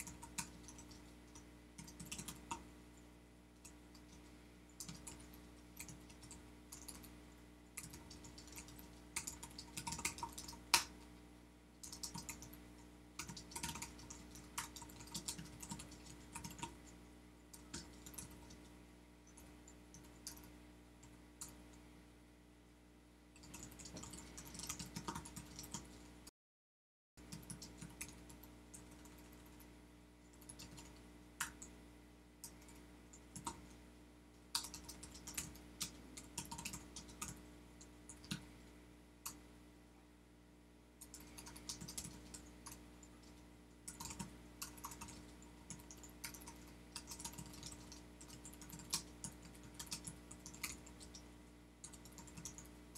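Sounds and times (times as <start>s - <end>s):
keyboard typing: 0.0s - 2.6s, 3.6s - 7.2s, 7.8s - 11.0s, 11.8s - 12.6s, 13.2s - 16.9s, 17.5s - 18.7s, 23.4s - 25.9s, 27.2s - 29.7s, 30.3s - 31.7s, 32.4s - 33.7s, 34.5s - 38.5s, 41.0s - 52.7s.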